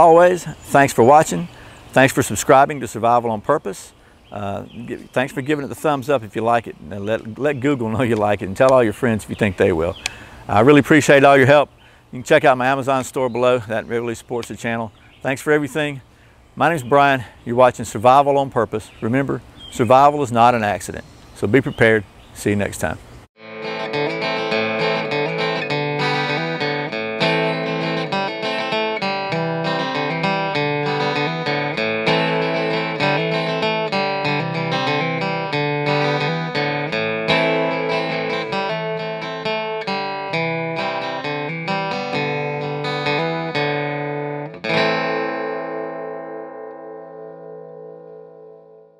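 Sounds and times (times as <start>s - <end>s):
guitar picking quick notes: 23.4s - 48.9s.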